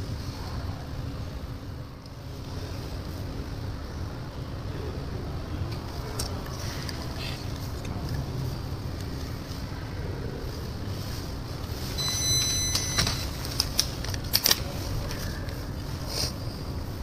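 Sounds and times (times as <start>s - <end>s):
steady low hum: 0.0s - 17.0s
brief high-pitched tone: 12.0s - 13.3s.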